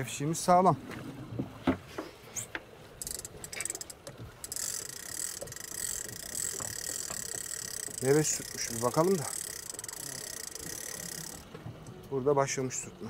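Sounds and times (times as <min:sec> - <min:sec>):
fishing reel gears ticking: 0:03.0 - 0:11.5.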